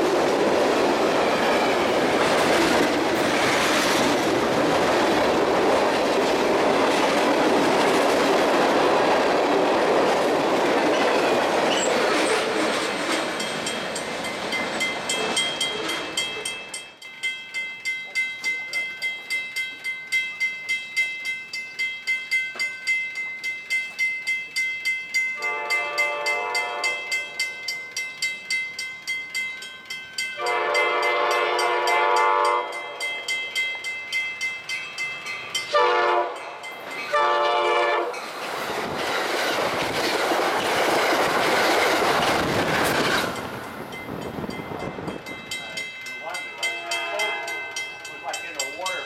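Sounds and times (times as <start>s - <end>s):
train wheels rushing on rails: 0.0s - 17.0s, 20.6s - 49.0s
crossing bell clanging: 1.0s - 9.3s, 10.6s - 49.0s
locomotive air horn blasts: 25.4s - 27.1s, 30.4s - 32.8s, 35.7s - 36.4s, 37.1s - 38.1s, 46.7s - 47.6s.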